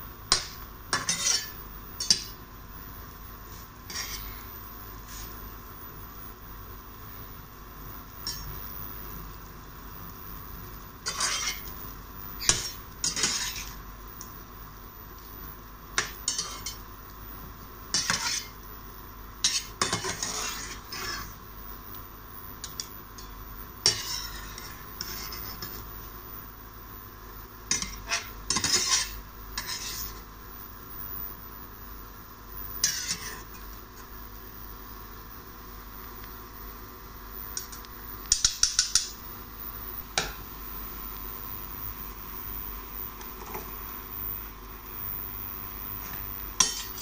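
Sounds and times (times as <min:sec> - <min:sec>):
oil sizzling: 0:00.1 - 0:05.7, 0:06.9 - 0:47.0
metal utensils scraping a frying pan: 0:00.3 - 0:02.3, 0:03.9 - 0:04.5, 0:11.0 - 0:11.7, 0:12.4 - 0:13.8, 0:16.0 - 0:16.8, 0:17.9 - 0:18.6, 0:19.4 - 0:21.4, 0:23.8 - 0:25.8, 0:27.7 - 0:30.2, 0:32.8 - 0:33.5, 0:46.6 - 0:47.0.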